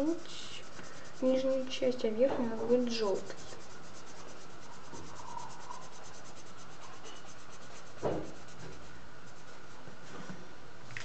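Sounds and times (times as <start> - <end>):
marker scratching on paper: 0.0 - 9.8
soft thump: 8.0 - 8.4.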